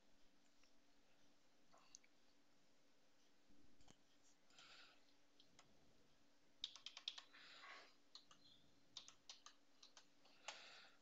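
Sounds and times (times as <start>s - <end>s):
keyboard keystrokes: 6.6s - 7.3s, 8.1s - 10.1s.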